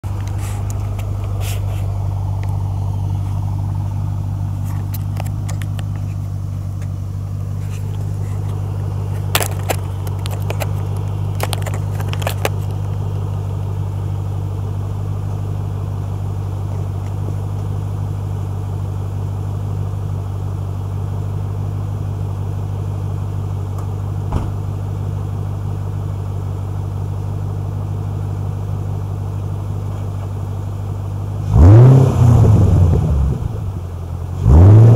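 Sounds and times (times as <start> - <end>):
car engine idling: 0.0 - 34.9
sharp clicks and knocks: 4.7 - 6.2, 9.2 - 13.0.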